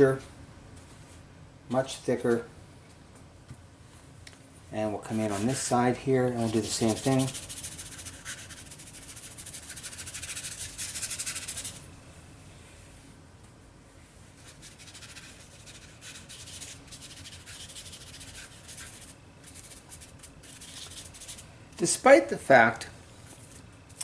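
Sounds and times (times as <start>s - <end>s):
brush scratching on paper: 5.2s - 5.7s, 6.3s - 11.8s, 14.4s - 21.4s.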